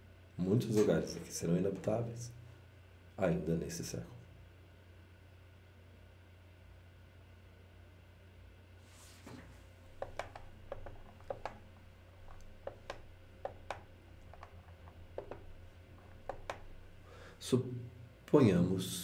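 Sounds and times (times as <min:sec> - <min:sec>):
low hum: 0:09.0 - 0:18.3
computer clicks: 0:09.9 - 0:17.0.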